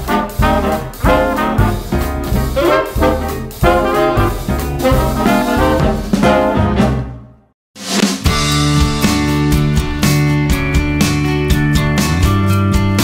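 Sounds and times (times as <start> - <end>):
upbeat swing music with brass: 0.0 - 10.2.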